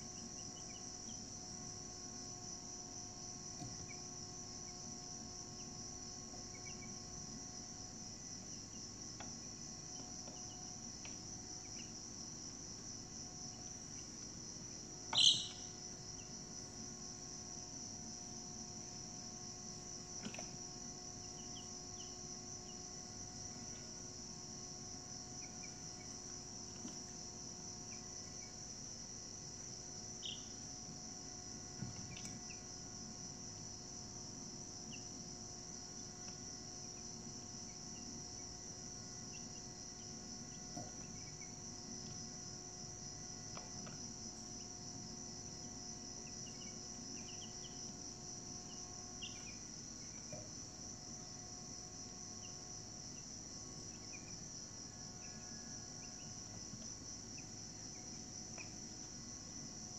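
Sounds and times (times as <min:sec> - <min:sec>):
crickets trilling: 0:00.0 - 0:59.9
faint short chirps: 0:15.1 - 0:15.7.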